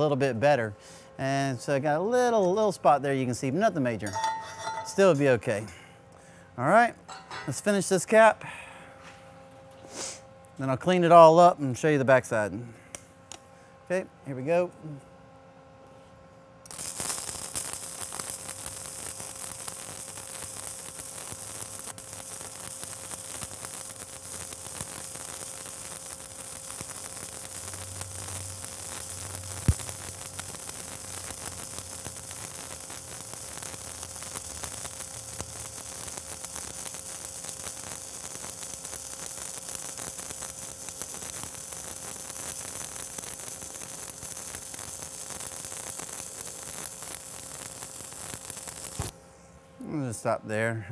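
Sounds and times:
welding arc crackling: 2.3 - 5.7, 16.6 - 49.2
sharp crack: 21.2 - 34.5.

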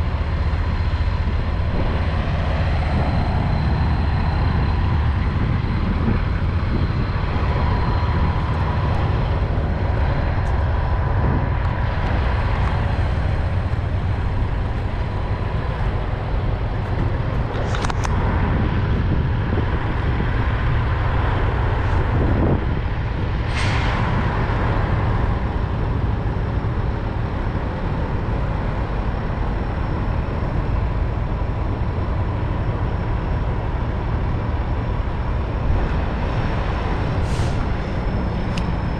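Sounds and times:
diesel trucks rumbling: 0.0 - 38.9
short air hisses: 23.5 - 24.1, 37.2 - 37.7.

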